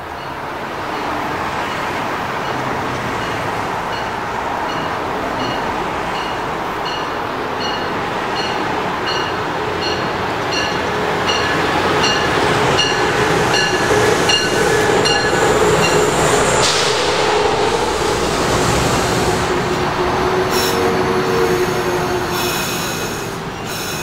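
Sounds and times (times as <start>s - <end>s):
train wheels rumbling on rail: 0.0s - 24.0s
high wheel squeal: 11.3s - 24.0s.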